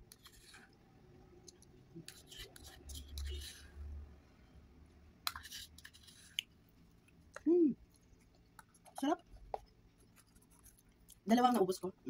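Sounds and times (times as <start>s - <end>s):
metal spoon scraping plastic cup: 0.1s - 0.7s, 2.0s - 3.7s.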